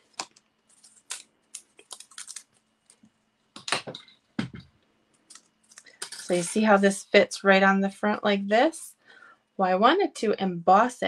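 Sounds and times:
heavier knock on tabletop: 4.4 - 4.7.

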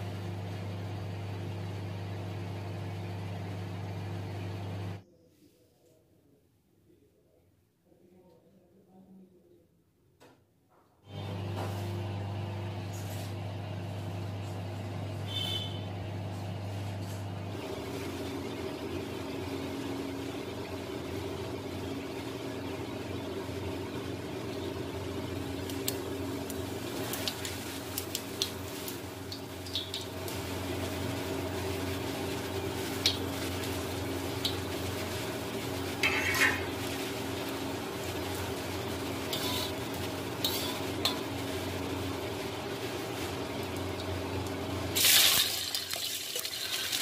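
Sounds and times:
spices sizzling in oil: 17.6 - 47.0
metal clinking and scraping: 36.0 - 36.7.

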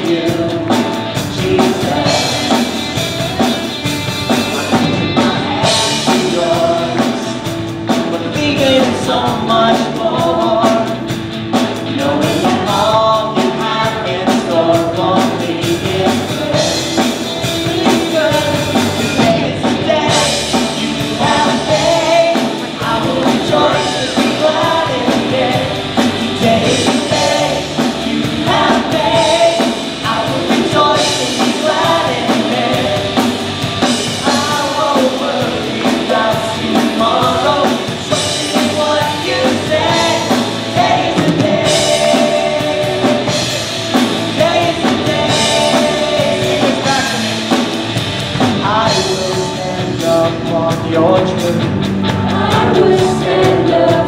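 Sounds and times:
women singing backing vocals: 0.0 - 2.9, 12.0 - 47.4, 52.2 - 54.0
band playing upbeat rock song: 0.0 - 54.0
man singing lead: 0.0 - 54.0.

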